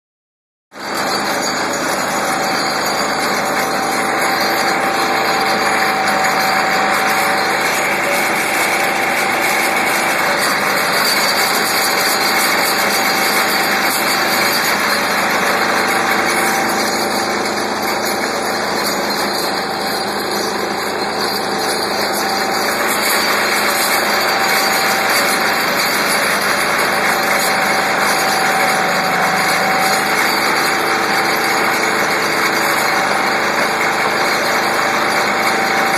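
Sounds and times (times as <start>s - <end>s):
pile driver machine drone: 0.8s - 35.9s.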